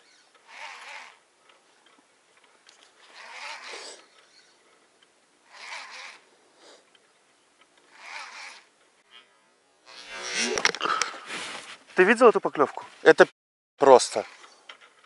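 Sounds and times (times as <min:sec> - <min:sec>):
fishing reel whirring: 0:00.0 - 0:01.2, 0:02.8 - 0:04.6, 0:05.4 - 0:06.8, 0:07.9 - 0:10.7, 0:14.0 - 0:14.6.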